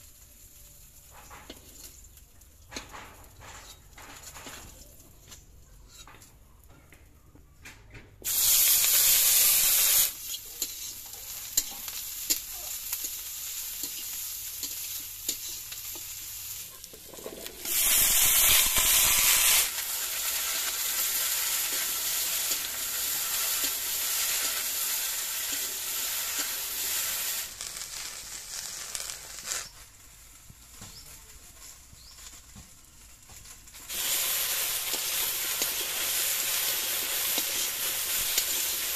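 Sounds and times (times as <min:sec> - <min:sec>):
okra sizzling in hot oil: 0:00.0 - 0:06.3, 0:08.2 - 0:38.9
loud burst of hissing: 0:08.2 - 0:16.7, 0:17.5 - 0:29.8, 0:33.8 - 0:38.9.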